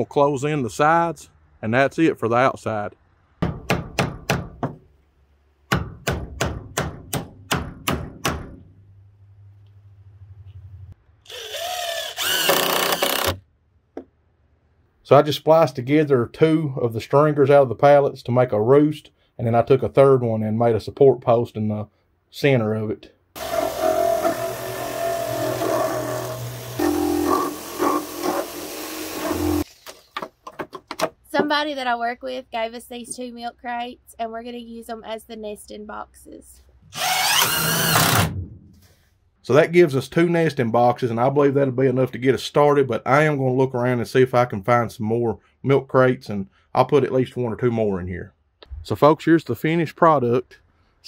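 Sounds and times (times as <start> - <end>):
hammer driving nails into wood: 3.4 - 4.8, 5.7 - 8.7
cordless drill whining: 11.2 - 13.4, 23.4 - 29.7, 36.9 - 38.2
power tool motor running: 11.3 - 13.4, 23.4 - 29.6, 36.9 - 38.2.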